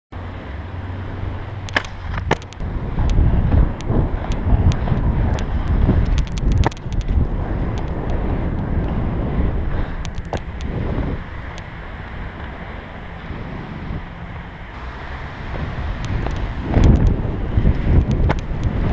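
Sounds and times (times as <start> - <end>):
skate wheels rolling on asphalt: 0.2 - 18.9
wind buffeting microphone: 0.2 - 18.9
sharp clicks: 1.6 - 3.2.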